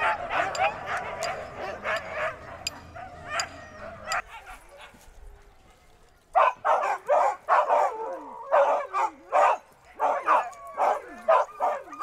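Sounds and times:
dogs whining: 0.0 - 4.5
dogs barking and yipping: 0.0 - 12.0.

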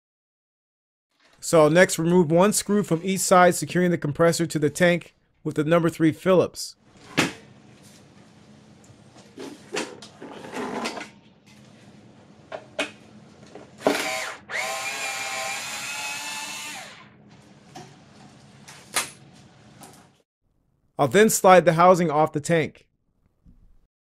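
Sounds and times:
power driver spinning screw: 13.9 - 17.0.

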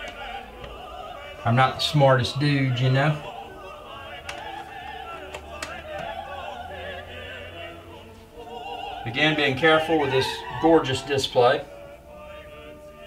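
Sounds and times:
operatic singing voice: 0.0 - 13.0
classical music: 3.1 - 13.0
faint clicks: 5.3 - 6.1.

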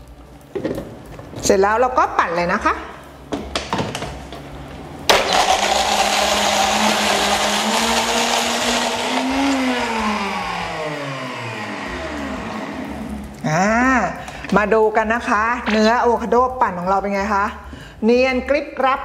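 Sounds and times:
blender blending ice: 5.1 - 13.4.

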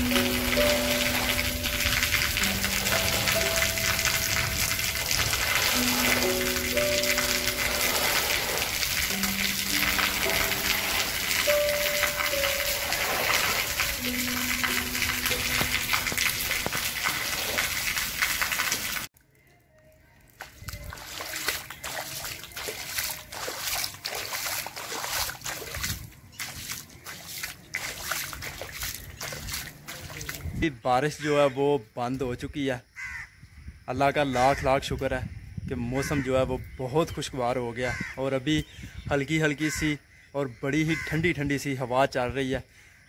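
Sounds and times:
harp music: 0.0 - 16.7
water splashing on concrete roof: 0.0 - 19.1, 20.4 - 30.6
steady hiss of rain: 5.8 - 17.1.

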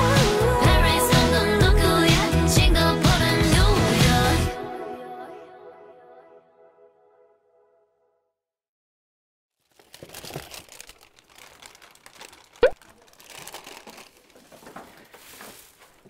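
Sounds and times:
plastic bags rustling: 9.6 - 16.0.

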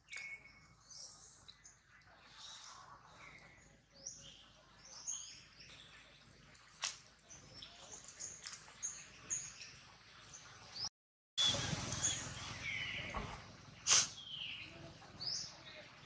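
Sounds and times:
bird chirps: 0.0 - 6.0, 11.4 - 15.6.

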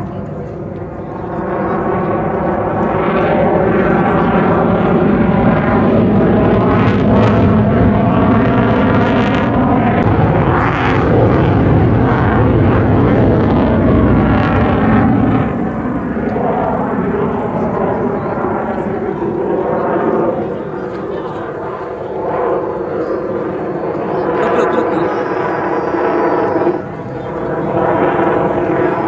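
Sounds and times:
airplane engine drone overhead: 0.0 - 29.0.

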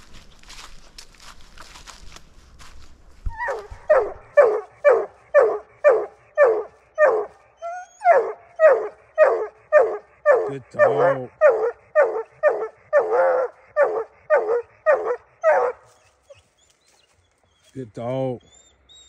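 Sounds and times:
footsteps through dry leaves: 0.0 - 7.5, 15.8 - 17.8
dog barking: 3.4 - 7.4, 8.1 - 15.9.

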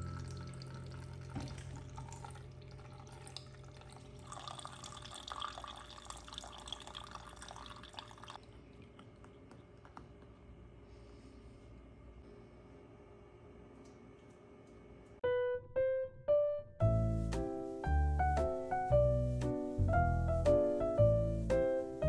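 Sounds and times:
water running and dripping: 0.0 - 9.6.

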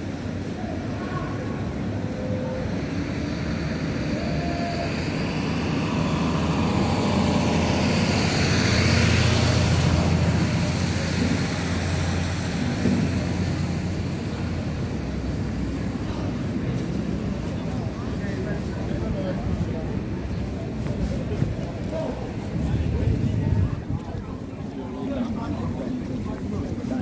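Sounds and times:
vehicle passing by: 2.8 - 14.5.

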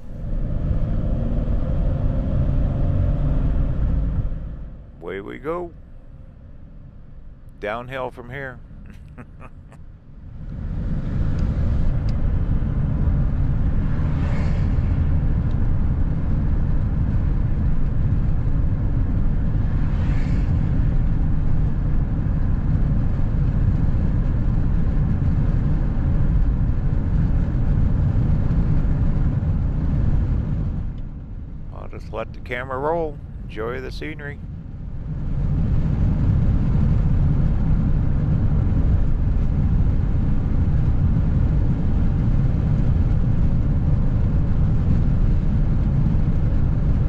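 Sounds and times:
vehicle road and engine rumble: 0.0 - 47.0
passing vehicle hiss: 13.6 - 15.4, 19.5 - 21.4.

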